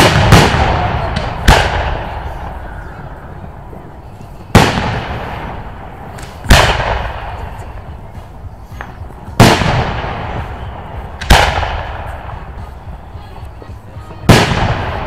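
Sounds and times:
firework shells booming: 0:00.0 - 0:02.7, 0:04.5 - 0:07.8, 0:08.8 - 0:12.6, 0:14.3 - 0:15.0.

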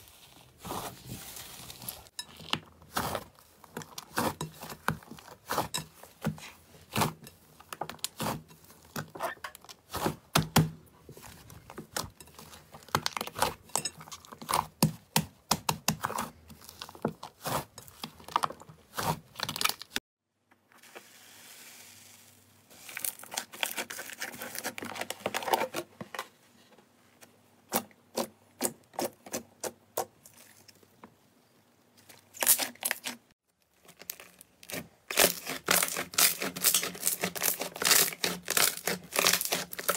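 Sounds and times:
hands kneading slime: 0:00.0 - 0:20.0, 0:33.9 - 0:39.9.

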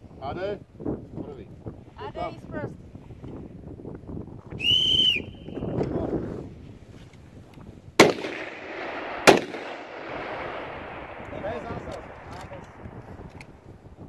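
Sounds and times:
wind noise: 0:00.0 - 0:14.0
rifle shots with echo: 0:08.0 - 0:13.8.

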